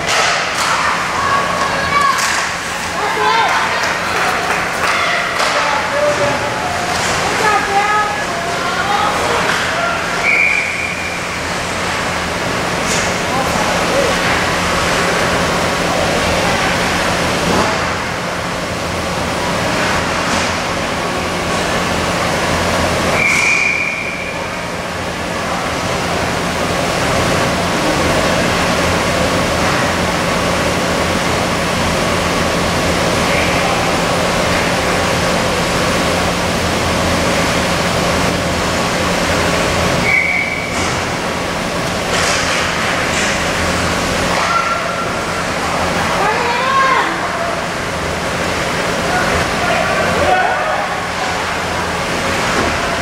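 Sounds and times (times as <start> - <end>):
arena noise: 0.0 - 53.0
referee's whistle blast: 10.2 - 11.2, 23.2 - 24.4, 40.0 - 40.7.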